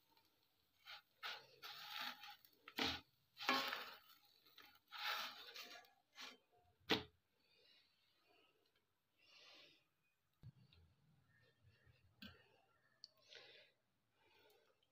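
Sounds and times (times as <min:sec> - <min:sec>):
wrapper rustling and scraping: 0:00.8 - 0:06.5.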